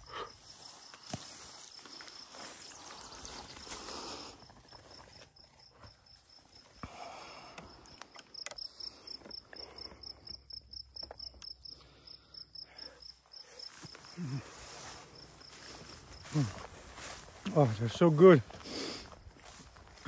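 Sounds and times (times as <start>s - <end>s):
insect chirping: 0.0s - 20.0s.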